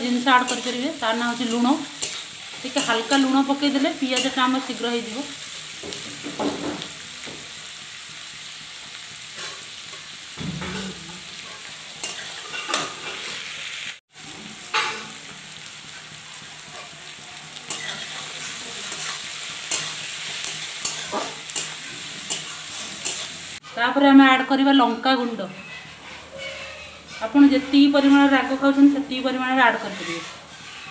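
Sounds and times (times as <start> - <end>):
onions sizzling in hot oil: 0.0 - 30.9
spatula scraping metal pan: 0.1 - 4.8, 9.4 - 13.5, 17.6 - 24.0, 25.2 - 30.9.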